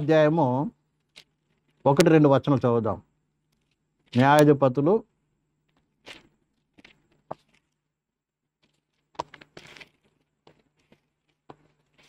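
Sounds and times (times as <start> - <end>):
soft rustling: 0.9 - 1.9, 5.6 - 7.9, 8.5 - 12.0.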